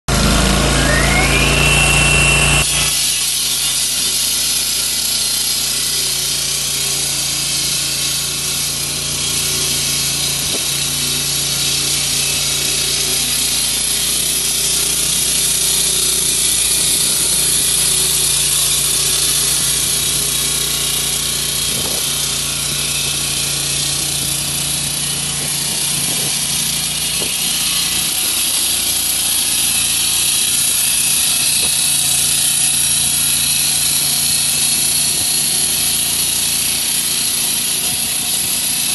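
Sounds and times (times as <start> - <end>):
hydraulic saw cutting concrete: 0.1 - 38.9
low hum: 0.2 - 2.9.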